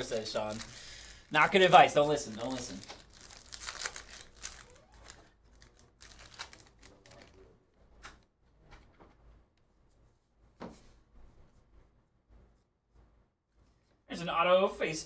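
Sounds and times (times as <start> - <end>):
wrapper crinkling and tearing: 0.0 - 7.5.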